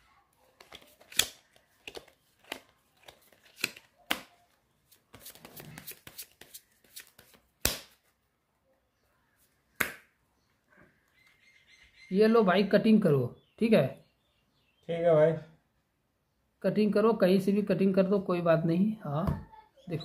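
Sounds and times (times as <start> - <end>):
playing cards being shuffled: 0.5 - 8.1.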